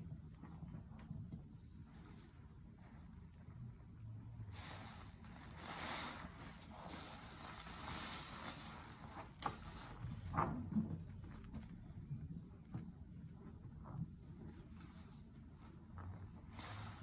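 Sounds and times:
sponge squelching in soapy water: 4.3s - 10.2s, 13.8s - 17.0s.

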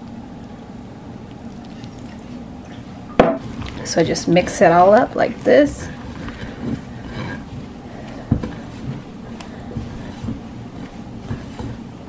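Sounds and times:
hands kneading dough: 3.4s - 12.0s.

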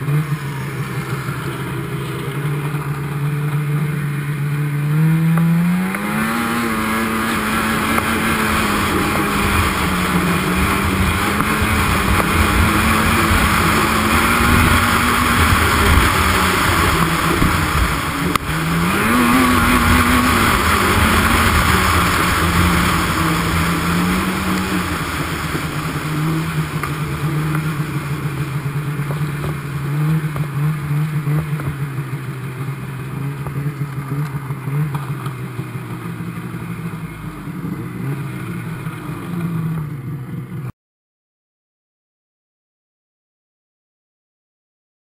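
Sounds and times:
wind and track rush: 0.0s - 32.0s
snowmobile engine running: 0.0s - 40.7s.

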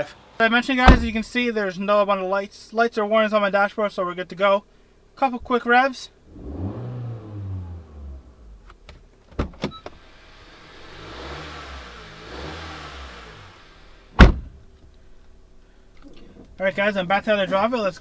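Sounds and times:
loud thump: 0.9s - 1.3s, 14.1s - 14.6s
car engine revving: 6.2s - 8.8s, 10.0s - 14.6s.

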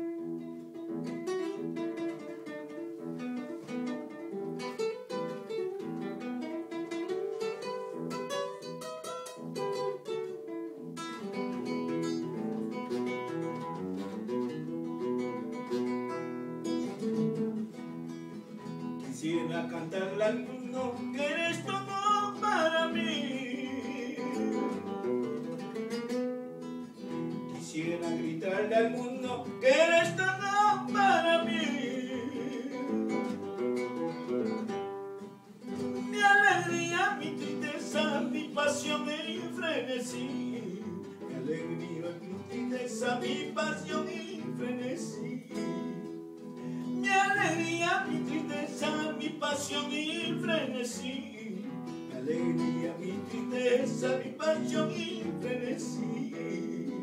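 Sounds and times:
acoustic guitar strumming: 0.0s - 57.0s
person singing: 19.0s - 25.1s, 27.5s - 33.5s, 35.8s - 57.0s.

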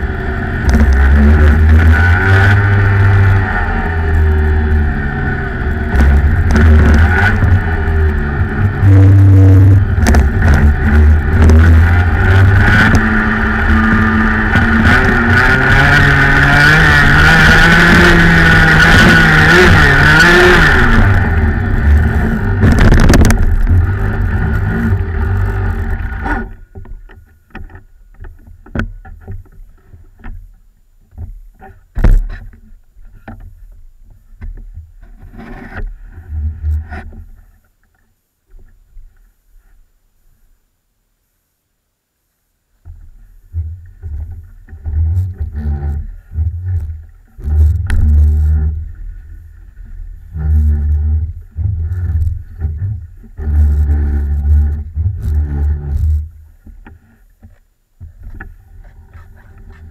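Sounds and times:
kart engine running hard: 0.0s - 26.6s
faint knocks and rustles: 26.5s - 40.6s.

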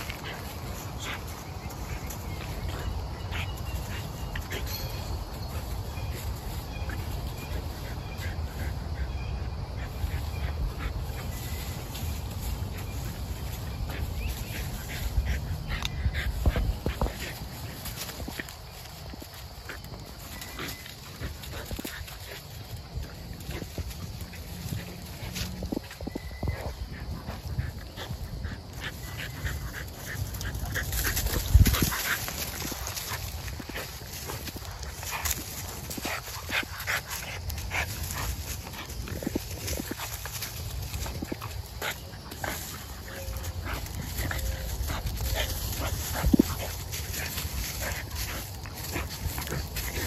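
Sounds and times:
paws scuffling in leaves: 0.0s - 50.0s
puppies whining: 42.8s - 46.0s.

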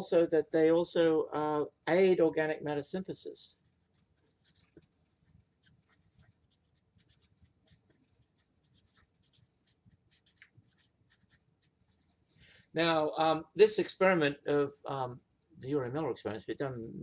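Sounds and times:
marker squeaking on whiteboard: 3.5s - 12.4s.

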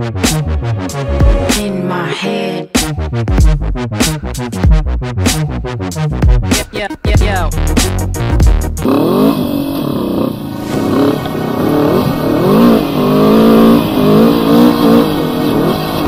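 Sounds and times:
quad engine revving: 8.7s - 16.0s.

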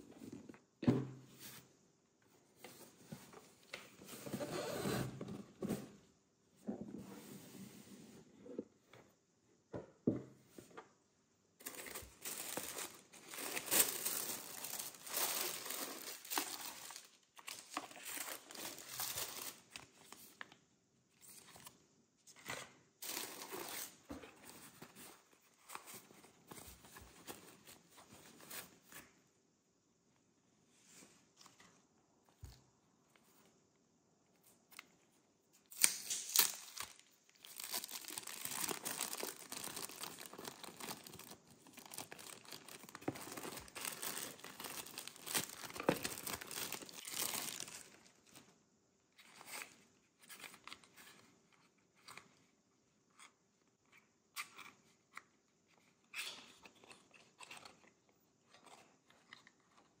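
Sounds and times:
cellophane wrap crinkling and tearing: 11.6s - 20.1s, 35.7s - 48.4s.

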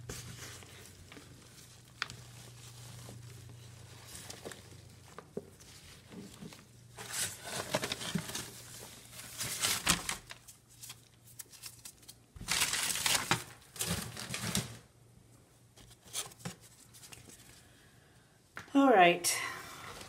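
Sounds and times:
cardboard bedding rustling: 0.0s - 10.4s.

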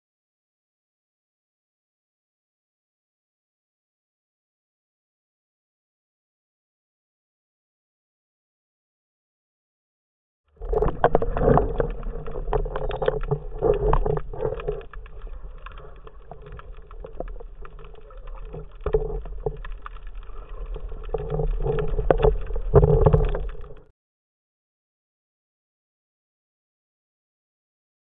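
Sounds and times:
muffled underwater noise: 10.6s - 23.9s.

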